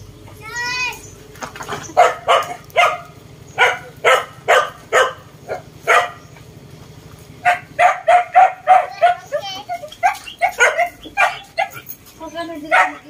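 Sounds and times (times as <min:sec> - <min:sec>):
dog barking: 0:02.0 - 0:06.3, 0:07.4 - 0:12.0, 0:12.6 - 0:13.0.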